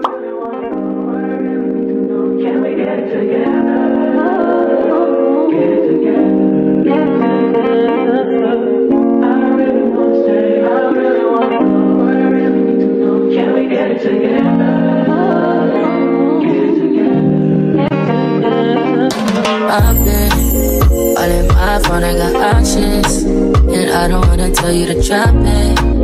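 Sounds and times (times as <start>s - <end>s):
person singing: 0.0s - 26.0s
held chords: 14.4s - 26.0s.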